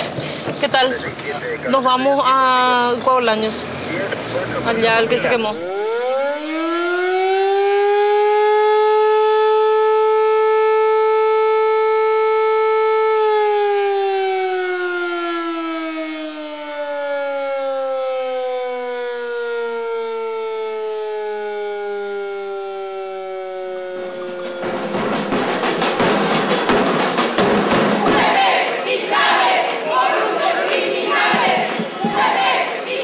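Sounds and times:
siren wailing: 4.4s - 26.1s.

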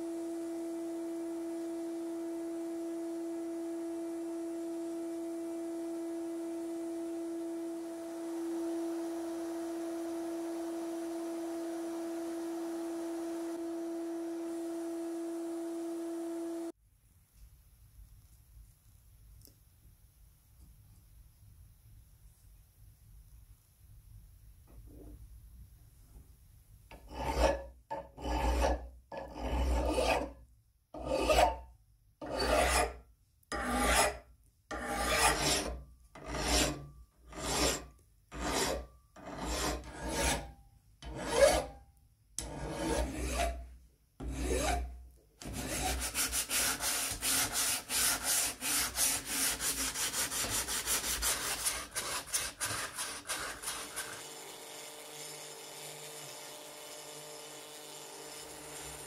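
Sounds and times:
hand file rasping on metal: 26.9s - 30.4s, 31.0s - 31.6s, 32.2s - 41.8s, 42.4s - 43.6s, 44.2s - 54.3s.

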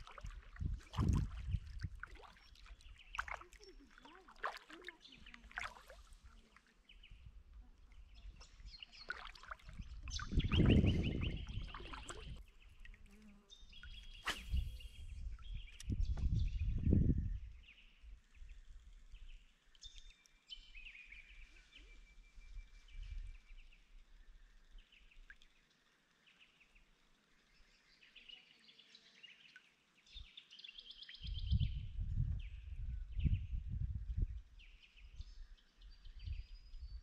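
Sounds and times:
birds chirping: 8.0s - 12.7s.

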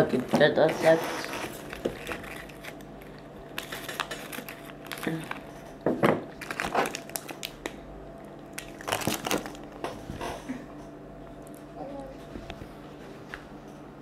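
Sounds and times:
plastic wrappers crinkling: 0.0s - 10.3s.

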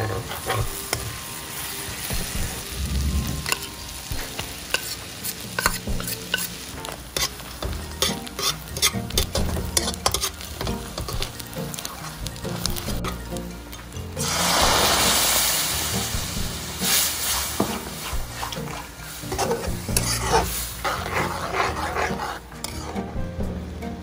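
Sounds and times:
metal spatula scraping pan: 0.0s - 1.2s, 2.6s - 11.3s, 14.2s - 23.2s
garlic sizzling in butter: 0.0s - 13.5s, 14.2s - 23.2s.

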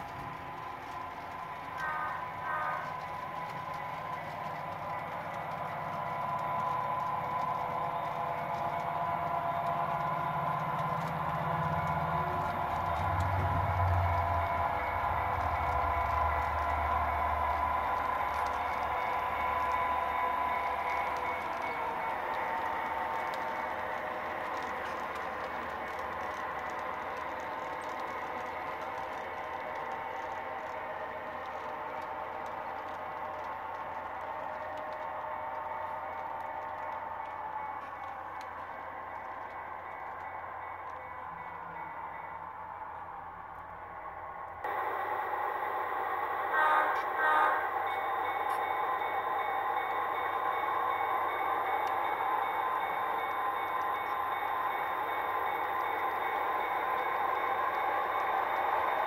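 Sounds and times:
model train clattering on track: 0.0s - 43.8s, 45.8s - 59.0s.

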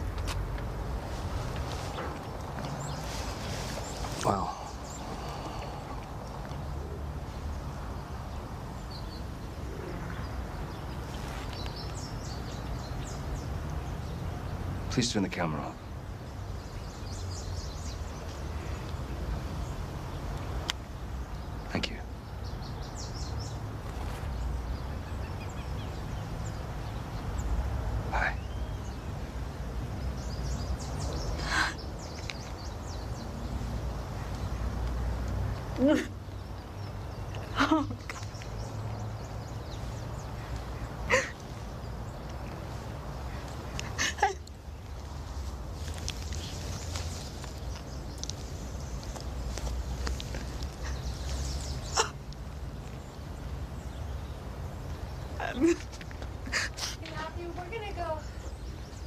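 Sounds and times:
bird chirps: 28.1s - 29.2s
woman sobbing: 37.5s - 38.1s, 41.1s - 41.4s, 43.9s - 44.5s.

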